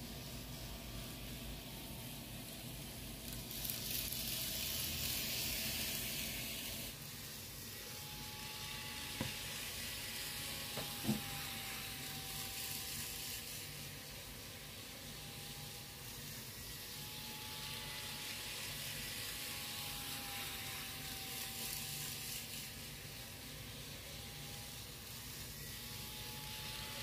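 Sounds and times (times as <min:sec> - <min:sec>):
faint steady whine: 0:00.0 - 0:27.0
model train running on track: 0:03.2 - 0:07.7, 0:12.6 - 0:14.8, 0:21.3 - 0:23.9.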